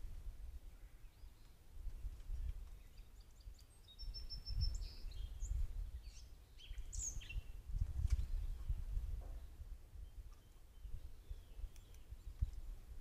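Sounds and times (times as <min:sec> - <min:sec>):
wild birds chirping: 0:00.5 - 0:13.0.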